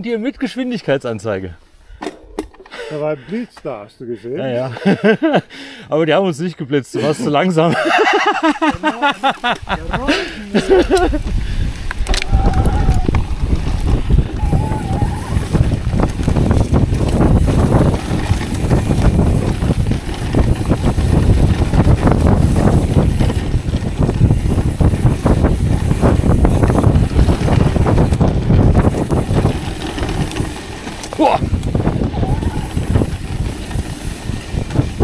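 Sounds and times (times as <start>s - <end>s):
bike rattling and knocking: 8.0s - 35.0s
tyre noise on dirt: 8.7s - 35.0s
wind on microphone: 9.6s - 35.0s.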